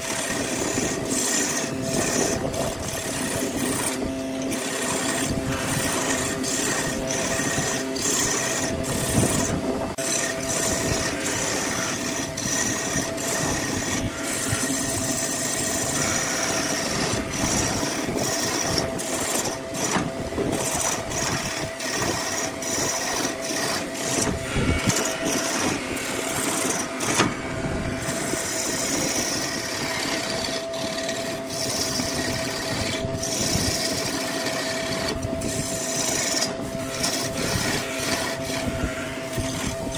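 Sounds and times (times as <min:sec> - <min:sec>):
lathe motor hum: 0:00.0 - 0:39.9
turning tool scraping wood: 0:00.0 - 0:39.9.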